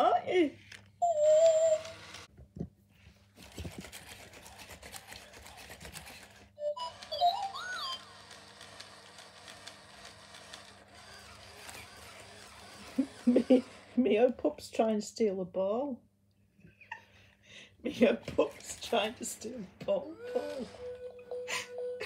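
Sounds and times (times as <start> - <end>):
quick mechanical clicks: 3.8 - 13.7.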